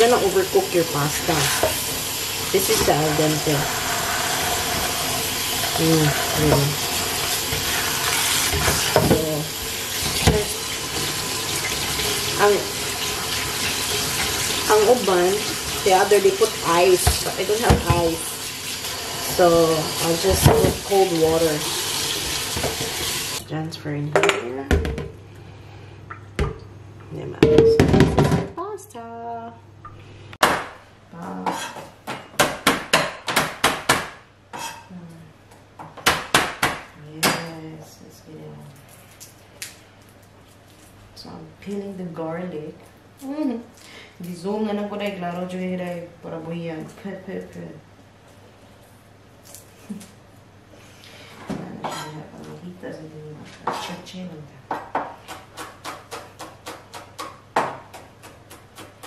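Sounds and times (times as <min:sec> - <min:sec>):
tap water running: 0:00.0 - 0:23.5.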